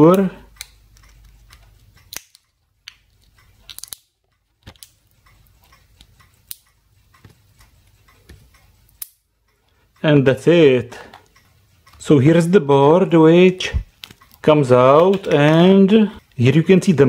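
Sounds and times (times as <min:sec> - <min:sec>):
plastic housing clicking and cracking: 0:00.6 - 0:05.0, 0:14.0 - 0:15.8.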